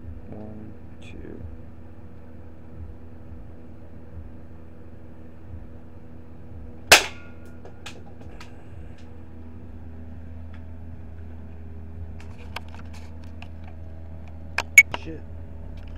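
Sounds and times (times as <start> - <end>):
low hum: 0.0 - 15.9
bb gun shot: 6.9 - 8.4.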